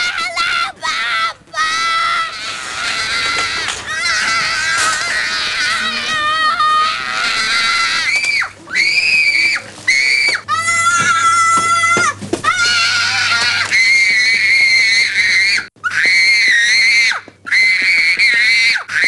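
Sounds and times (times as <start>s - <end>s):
child screaming: 0.0s - 19.0s.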